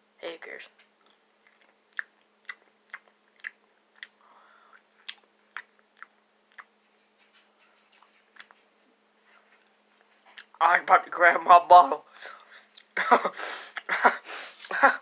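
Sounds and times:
chewing clicks close to microphone: 5.0 - 6.7, 8.0 - 8.6.

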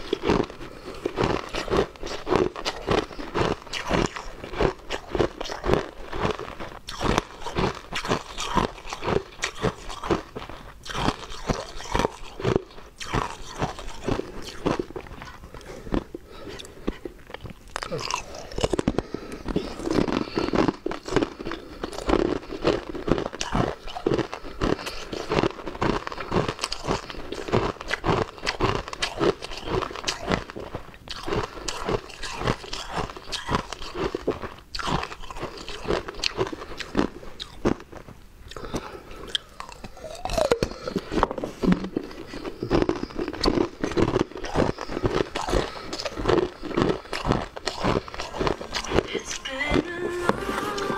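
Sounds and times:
ice crunching between teeth: 0.0 - 50.9.

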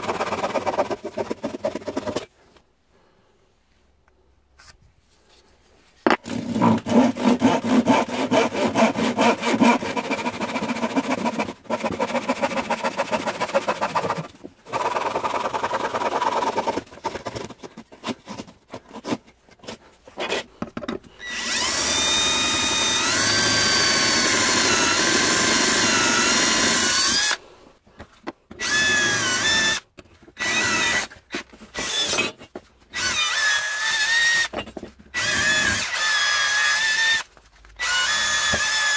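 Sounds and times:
wood being sawn: 0.0 - 2.3, 6.2 - 20.6, 21.4 - 27.4
electric drill boring into wood: 21.2 - 27.4, 28.6 - 29.8, 30.4 - 31.2, 31.8 - 32.3, 33.0 - 34.5, 35.1 - 38.9.

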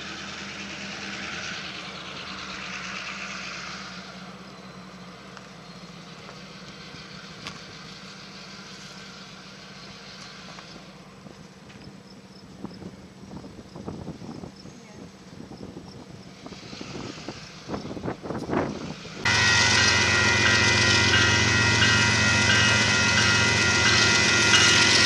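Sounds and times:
engine humming: 0.0 - 25.0.

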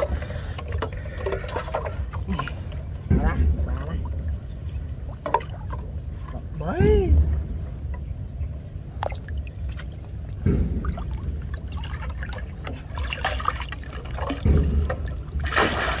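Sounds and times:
water pouring and dribbling: 0.0 - 6.9, 8.8 - 16.0
water sloshing and trickling: 0.0 - 16.0
surges of moving water: 9.0 - 16.0.

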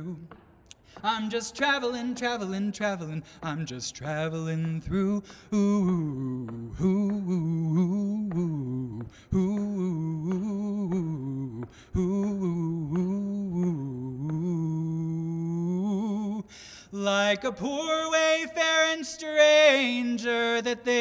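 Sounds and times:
man humming a melody: 4.9 - 16.4.

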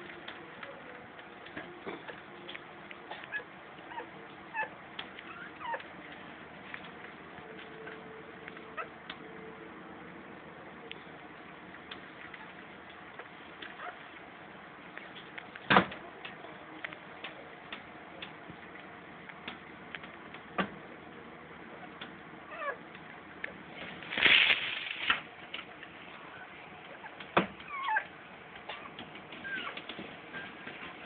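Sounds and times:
puppy squeaking: 3.1 - 5.9, 13.2 - 14.0, 22.5 - 22.8, 26.3 - 28.1, 28.7 - 31.0
rustling: 23.5 - 27.9.

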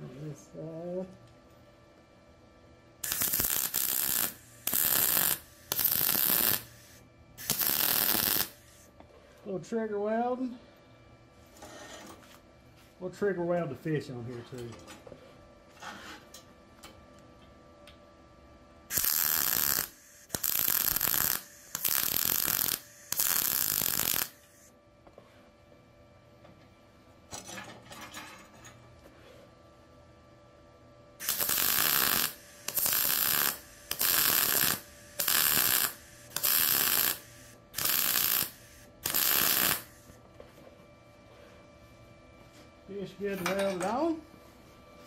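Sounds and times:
welding arc crackling: 3.0 - 8.9, 18.9 - 24.7, 31.2 - 40.1.

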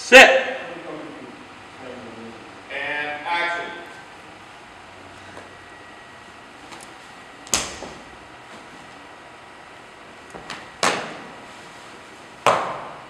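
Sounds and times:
sharp slaps or stamps: 7.5 - 8.0, 12.4 - 13.0.

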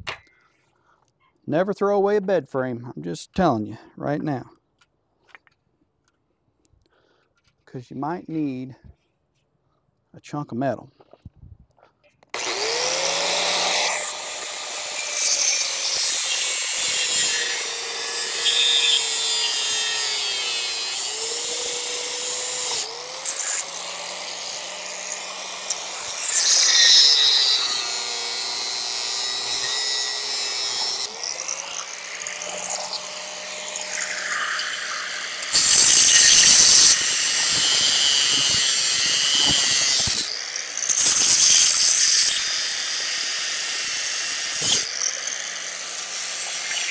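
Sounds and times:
power tool cutting steel: 12.3 - 46.9.

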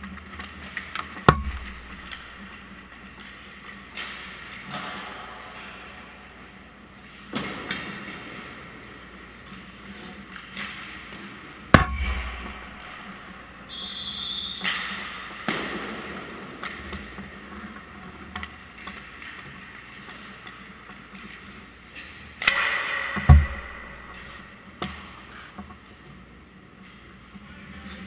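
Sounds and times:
puck hitting goalie equipment: 1.2 - 2.3, 11.7 - 13.0, 22.4 - 24.4
brief high squeal: 13.7 - 14.8.

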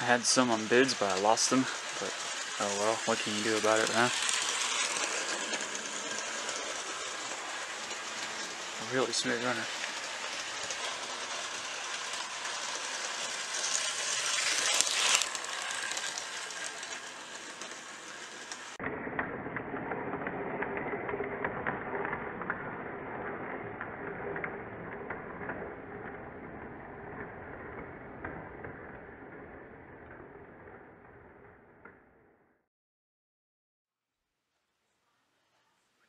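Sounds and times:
model train motor whirring: 0.0 - 22.6
wheels rolling on rails: 0.0 - 32.3.

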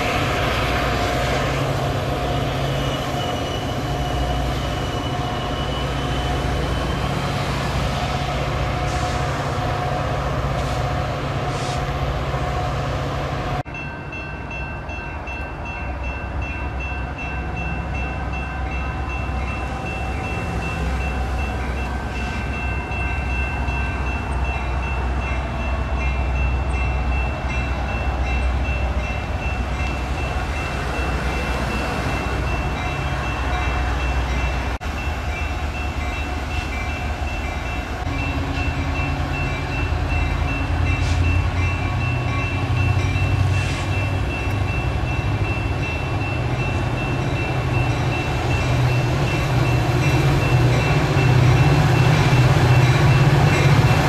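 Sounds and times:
diesel locomotive drone: 0.0 - 54.0.

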